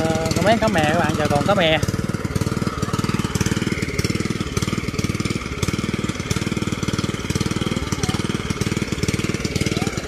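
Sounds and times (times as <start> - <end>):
water pump engine running: 0.0 - 10.0.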